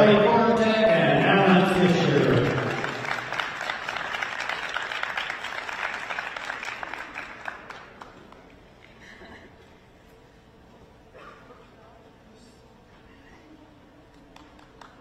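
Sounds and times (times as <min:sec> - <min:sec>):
audience applause: 0:01.1 - 0:08.4.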